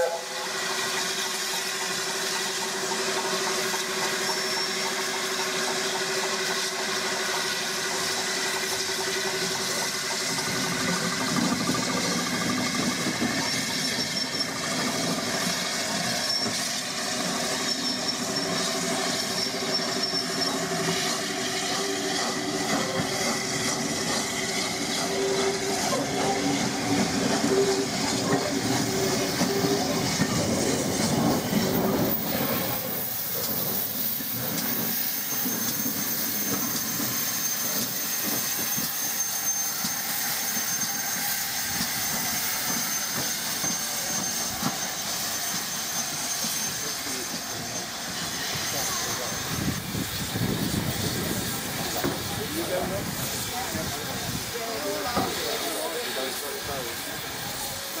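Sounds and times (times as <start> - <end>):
steam hissing: 0.0 - 58.0
steam locomotive hauling train: 0.0 - 58.0
thin high squeal: 3.8 - 5.1, 12.6 - 50.3.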